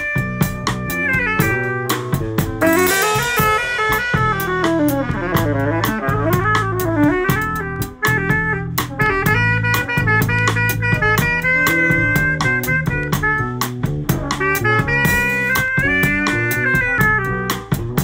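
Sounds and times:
band accompaniment: 0.0 - 18.0
drum kit playing: 0.0 - 18.0
saxophone playing jazz melody: 0.0 - 18.0.

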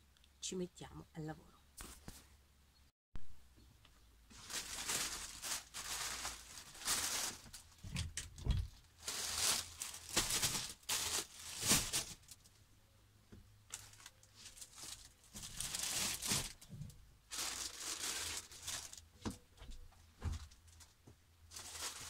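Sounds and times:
plastic bags rustling: 4.3 - 12.6, 13.7 - 19.4, 20.2 - 22.0.

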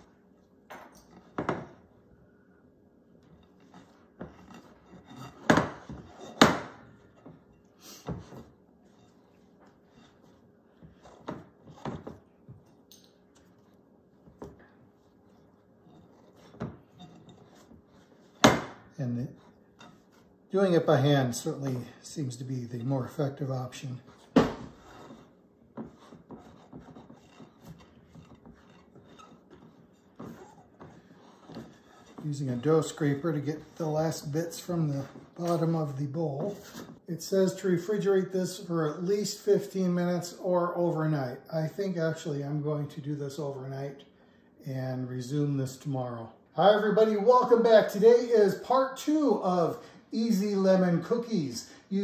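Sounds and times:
hands kneading dough: 2.9 - 37.1.

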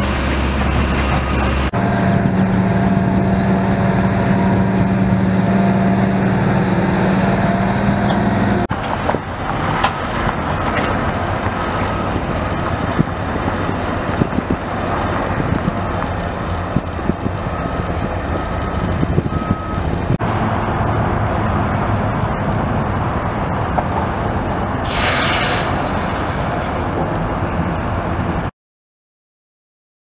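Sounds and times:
diesel machinery rumbling: 0.0 - 28.5
brief hiss: 24.9 - 26.1.

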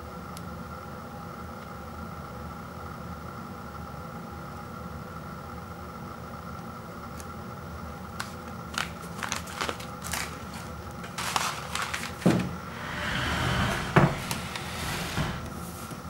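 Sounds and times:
paper bag crinkling: 8.2 - 12.4
paper bag rustling: 8.2 - 12.8.

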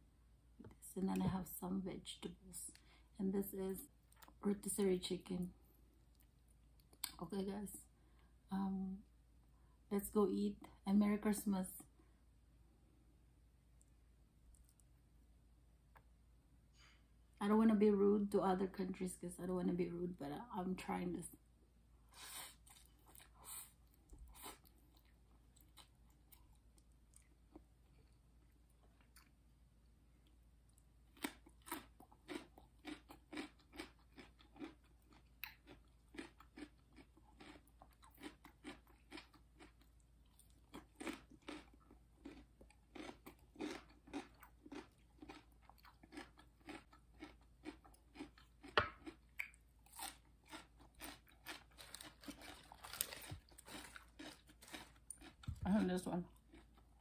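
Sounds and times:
chewing crunchy raw vegetables: 22.2 - 29.4, 30.2 - 57.0.

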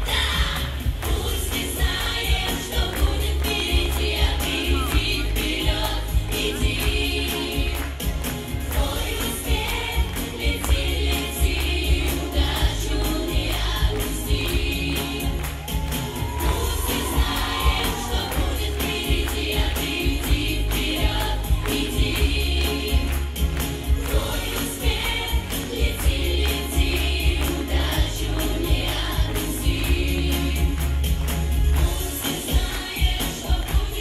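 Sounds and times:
children singing into microphones: 0.0 - 7.8
backing track with steady beat: 0.0 - 34.0.

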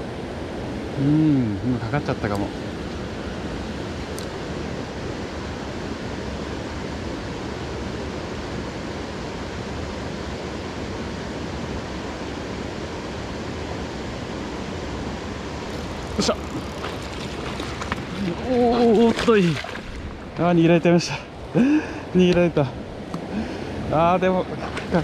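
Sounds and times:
mountain stream rushing: 13.9 - 25.0.

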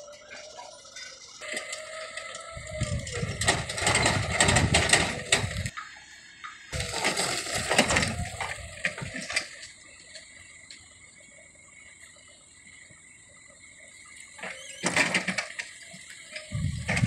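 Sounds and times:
forklift rattling over gravel: 0.0 - 5.8, 6.6 - 10.8, 14.3 - 17.0.

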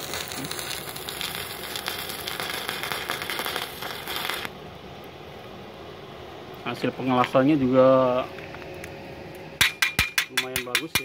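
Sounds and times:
welding arc crackling: 0.0 - 4.6.

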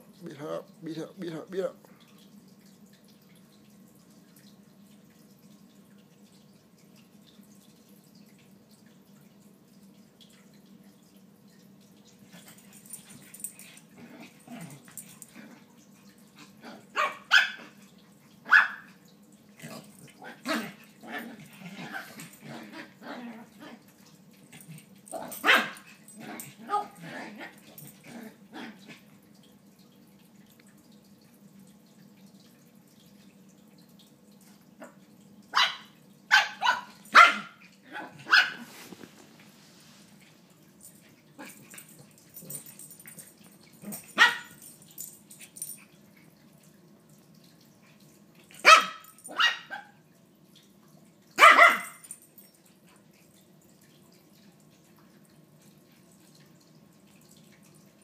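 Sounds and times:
small dogs barking: 16.6 - 17.8, 18.4 - 19.0, 25.1 - 27.9, 34.8 - 38.8, 43.8 - 44.7, 48.6 - 50.0, 51.4 - 52.2
dogs scuffling: 38.3 - 40.3.

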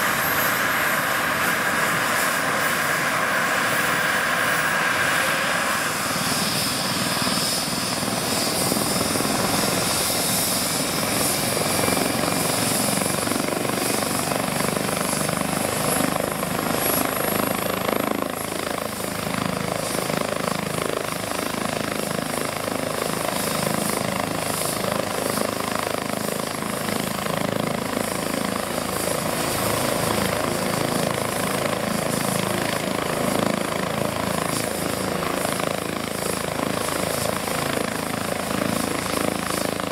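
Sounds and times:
high turbine whine: 0.0 - 19.5
helicopter rotor and engine: 0.0 - 39.9.

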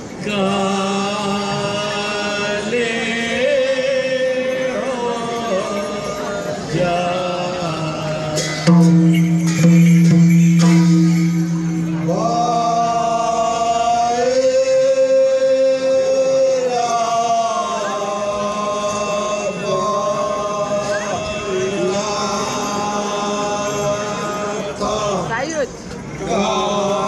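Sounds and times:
steady low drone tone: 5.4 - 16.8
sharp percussion strikes: 8.3 - 13.9.

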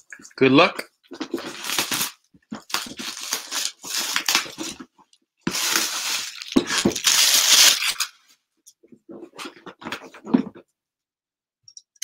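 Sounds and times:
wrapping tearing and crinkling: 1.1 - 4.9, 5.5 - 8.2.

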